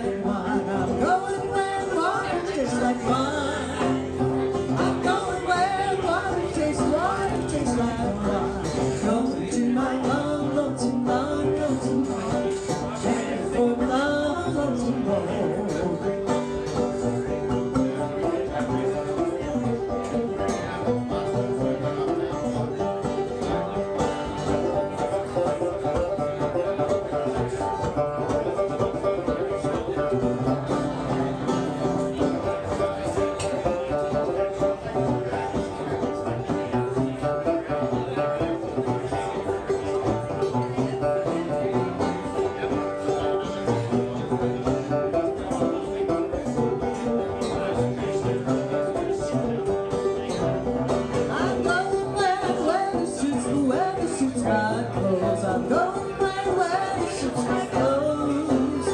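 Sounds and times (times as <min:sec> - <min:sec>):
banjo duet: 0:00.0 - 0:58.9.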